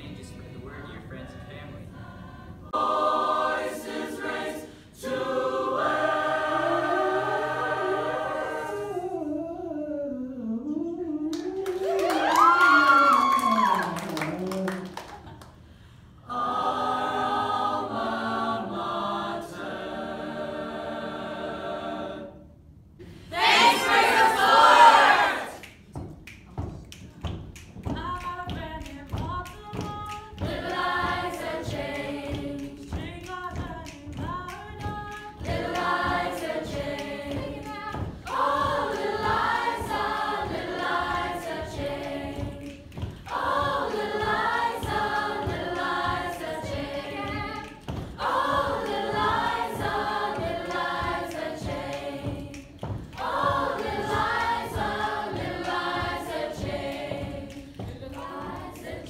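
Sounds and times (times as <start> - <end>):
choir singing a cappella: 0.0 - 12.1, 16.2 - 25.7, 29.4 - 59.0
low thumps keeping beat: 25.8 - 59.0.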